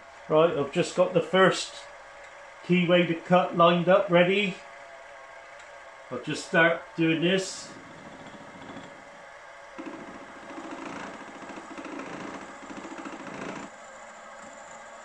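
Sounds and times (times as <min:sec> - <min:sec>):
milling machine spindle running: 0:07.7 - 0:09.1, 0:09.8 - 0:15.0
end mill cutting chatter: 0:09.8 - 0:13.8.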